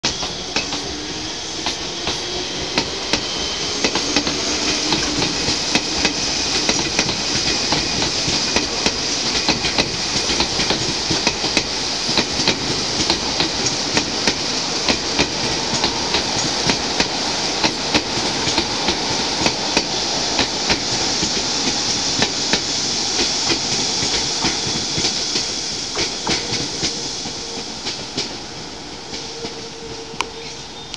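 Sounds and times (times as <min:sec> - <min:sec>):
electric train motor whine: 0:00.1 - 0:09.4
train wheels clacking over joints: 0:01.6 - 0:30.5.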